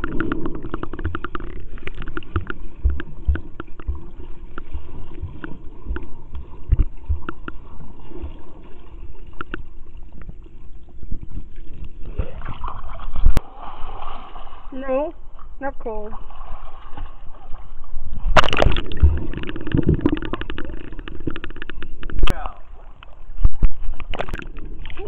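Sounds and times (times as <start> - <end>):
bubbles clicking and popping: 0.0 - 7.7, 18.3 - 22.4
water thumps against camera: 0.0 - 8.4, 18.3 - 22.5, 23.4 - 25.0
underwater gurgling: 0.0 - 25.0.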